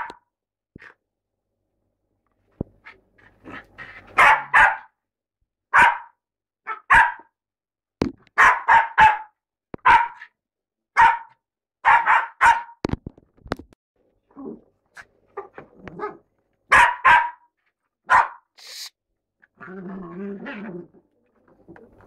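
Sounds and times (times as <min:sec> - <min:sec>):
small dog barking: 0:00.0 - 0:00.2, 0:04.2 - 0:05.0, 0:05.7 - 0:07.3, 0:08.4 - 0:10.3, 0:11.0 - 0:12.8, 0:15.4 - 0:18.5.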